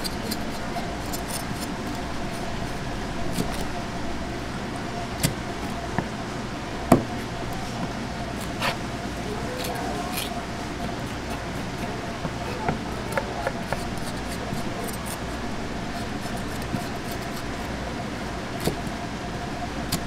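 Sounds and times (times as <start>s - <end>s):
knife scraping fish: 0.0s - 3.8s, 8.3s - 8.8s, 9.5s - 17.7s
steady background hum: 0.0s - 20.0s.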